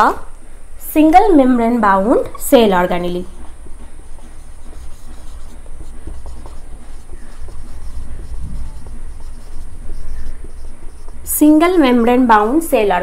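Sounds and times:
low steady hum: 0:00.0 - 0:13.0
marker writing on whiteboard: 0:03.0 - 0:12.6.

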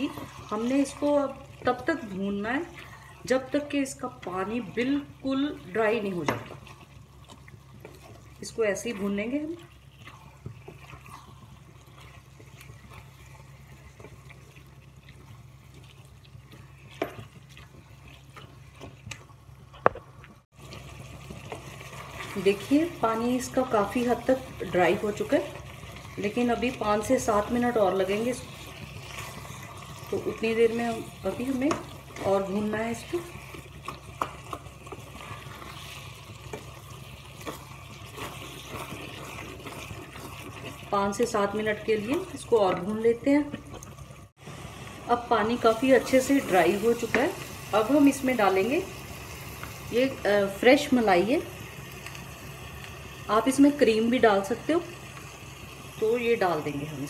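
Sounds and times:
vegetables sizzling: 0:00.0 - 0:57.0
spatula scraping in pan: 0:06.5 - 0:19.0, 0:20.8 - 0:43.9
spatula scraping and tapping pan: 0:31.5 - 0:40.8.

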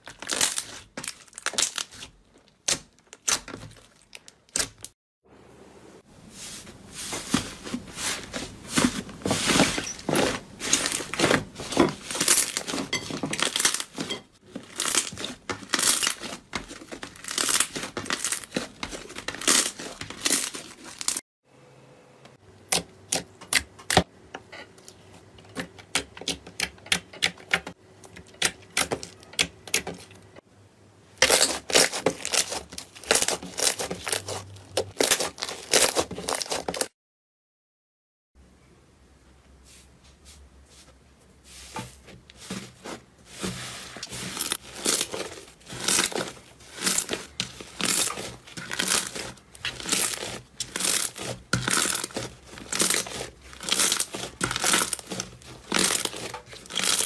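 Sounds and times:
slime crackling and popping: 0:00.0 - 0:04.9, 0:14.6 - 0:21.2, 0:44.4 - 0:57.0.

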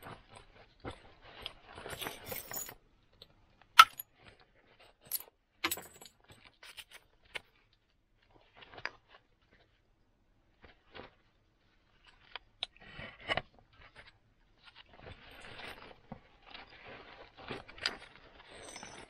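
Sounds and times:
handling noise of stone and tools: 0:00.0 - 0:09.8, 0:11.9 - 0:19.0.

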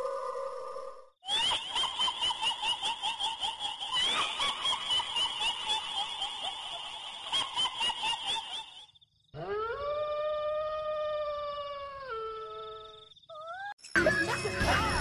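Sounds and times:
high-pitched cackling laugh: 0:01.3 - 0:09.0.

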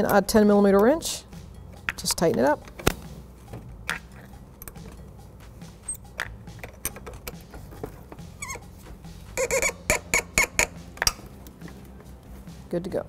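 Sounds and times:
wrench squeaking on metal: 0:03.9 - 0:11.3.

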